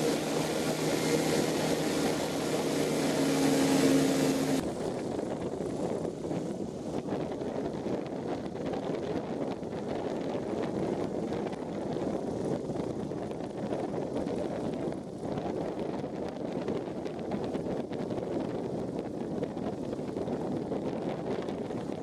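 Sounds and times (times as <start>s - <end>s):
aircraft engine idling: 0.0s - 4.9s
wind rushing over microphone: 0.0s - 22.0s.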